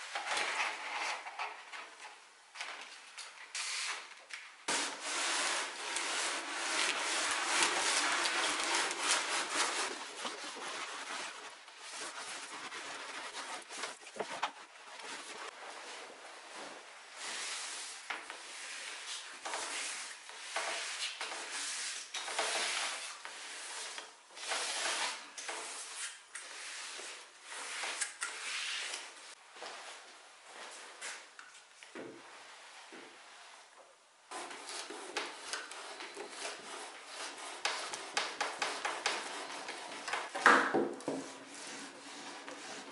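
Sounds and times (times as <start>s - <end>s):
iron sliding over wood veneer: 4.7s - 14.0s
damp sponge rubbing veneer: 4.7s - 16.6s, 34.3s - 40.2s, 41.1s - 42.9s.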